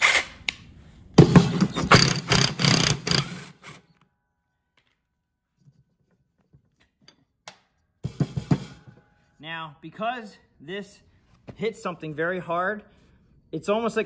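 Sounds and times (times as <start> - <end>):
impact wrench hammering: 1.2 - 3.8.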